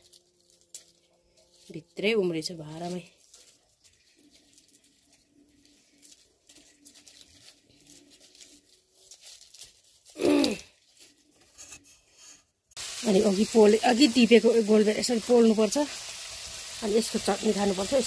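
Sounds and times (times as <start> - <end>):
onion stalks tearing and crinkling: 0.0 - 11.5.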